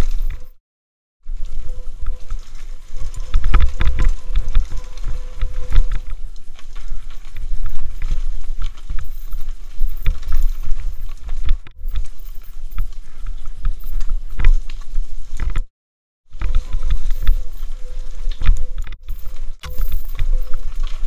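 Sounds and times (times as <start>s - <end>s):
bike rattling and clattering: 0.0s - 0.6s, 1.3s - 15.7s, 16.3s - 21.0s
wind buffeting microphone: 1.3s - 15.6s.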